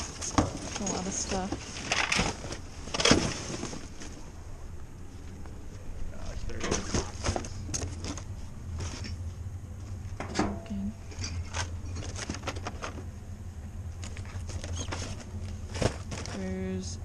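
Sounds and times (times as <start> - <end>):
wrappers and cardboard rustling: 0.0 - 4.3, 14.0 - 16.7
steady low hum: 0.0 - 17.0.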